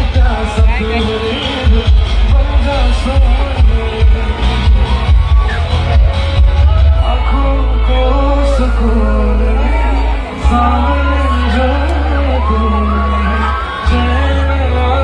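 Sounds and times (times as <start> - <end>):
music with heavy bass beat: 0.0 - 8.2
person singing: 0.0 - 15.0.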